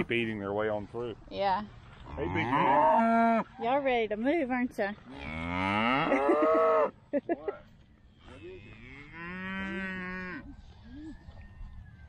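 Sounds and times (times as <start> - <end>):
cattle mooing: 2.1 - 3.6, 5.1 - 6.9, 8.2 - 10.5.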